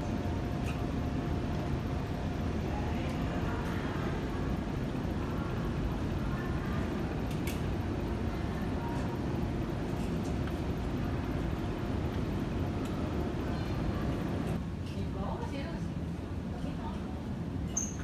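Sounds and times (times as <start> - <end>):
low indoor rumble: 0.0 - 17.7
faint indistinct voices: 2.2 - 11.2, 12.6 - 18.0.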